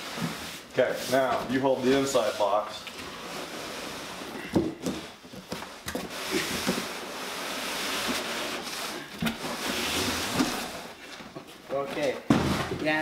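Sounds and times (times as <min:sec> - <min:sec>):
cardboard box rubbing against carton: 0:02.0 - 0:04.4, 0:06.1 - 0:11.0.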